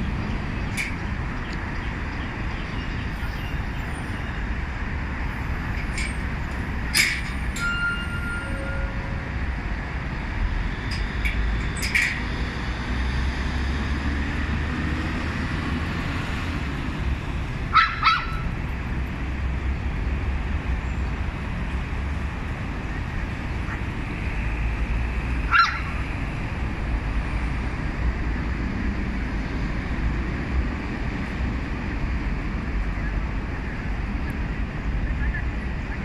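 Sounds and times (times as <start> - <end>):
small dogs yapping: 17.7 - 18.5, 25.5 - 26.0.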